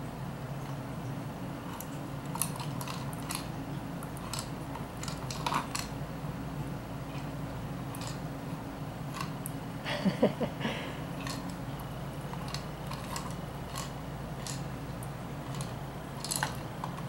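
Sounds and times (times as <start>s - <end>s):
treats clicking inside ball: 11.2s - 17.0s.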